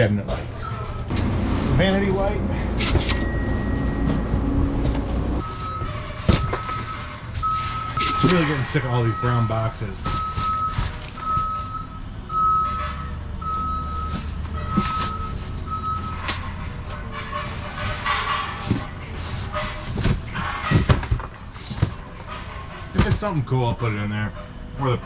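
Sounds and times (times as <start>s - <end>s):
low engine rumble: 0.0s - 20.3s
reversing alarm beeping: 2.8s - 16.3s
cardboard boxes scraping and knocking: 3.4s - 11.7s, 13.6s - 16.2s, 16.8s - 23.8s.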